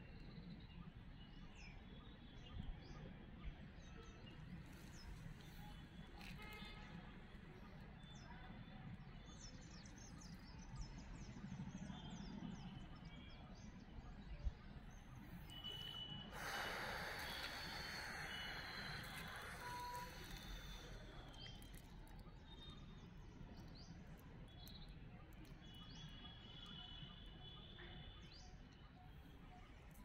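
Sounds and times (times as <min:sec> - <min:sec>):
bird chirping: 0:14.7 - 0:21.8.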